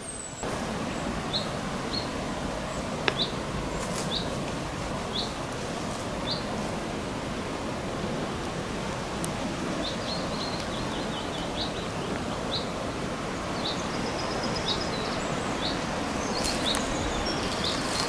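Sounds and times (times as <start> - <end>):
small birds chirping: 0.0 - 4.4, 5.1 - 5.5, 6.2 - 6.6, 9.7 - 18.0
outdoor background hiss: 0.0 - 18.0.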